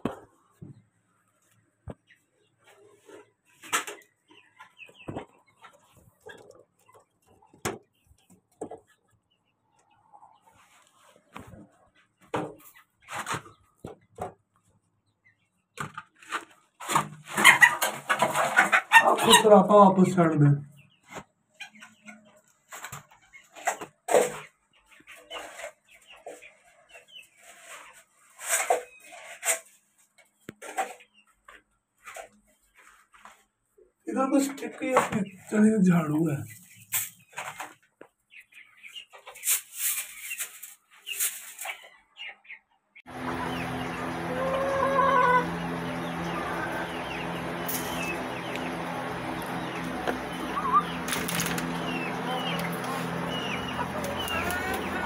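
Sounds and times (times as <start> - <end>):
chicken squawking and clucking: 16.9 - 19.7, 43.1 - 55.0
small animals chirping: 43.2 - 55.0
wings flapping: 47.6 - 55.0.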